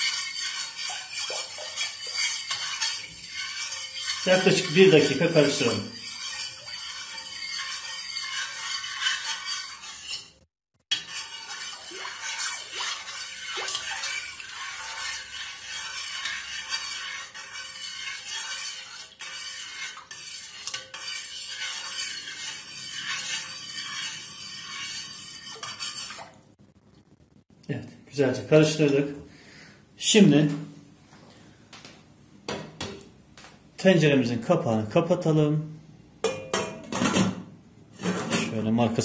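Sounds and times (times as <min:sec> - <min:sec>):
spoon stirring milk swishing: 0:00.0 - 0:26.5
spoon clinking against pot: 0:36.2 - 0:36.9.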